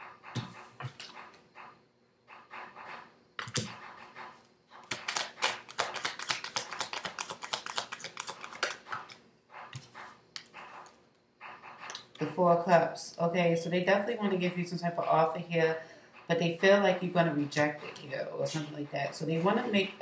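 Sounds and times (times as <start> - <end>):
cards being shuffled: 4.8 - 9.2
cards rustling: 4.8 - 9.2.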